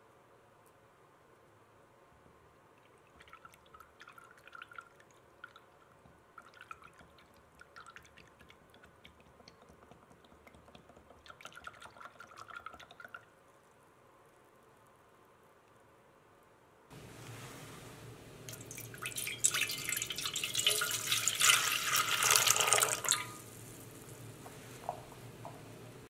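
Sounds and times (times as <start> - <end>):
stick ticking against plastic cup: 6.0 - 13.1
liquid swishing: 17.0 - 26.0.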